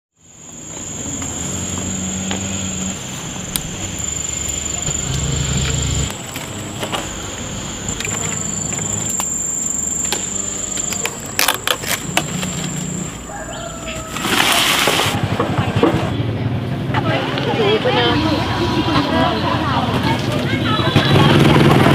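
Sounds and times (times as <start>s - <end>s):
high-pitched whine: 0.2s - 15.2s
small motor running: 0.5s - 13.2s.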